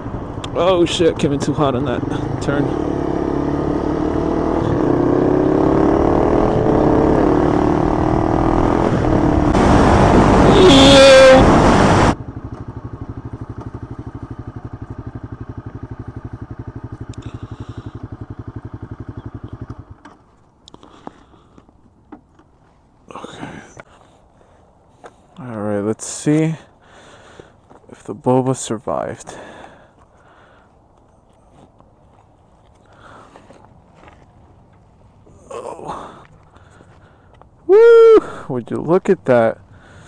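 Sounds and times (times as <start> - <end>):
motorcycle engine idling: 0.0 - 4.8, 12.2 - 21.6, 39.3 - 40.0
motorcycle engine running: 0.0 - 21.4, 39.2 - 40.0.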